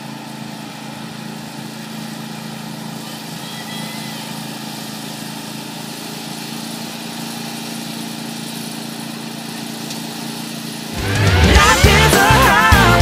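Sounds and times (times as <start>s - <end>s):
lawn tractor engine running: 0.0s - 13.0s
loud music: 10.9s - 13.0s.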